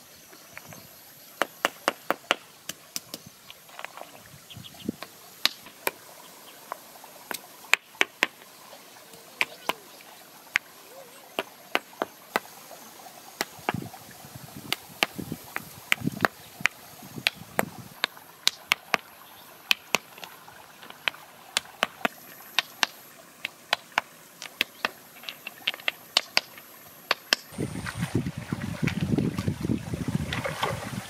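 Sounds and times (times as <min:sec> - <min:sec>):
stones knocking together: 0:05.0 - 0:06.0, 0:11.3 - 0:12.5, 0:13.4 - 0:13.9, 0:14.6 - 0:19.1, 0:19.7 - 0:27.5.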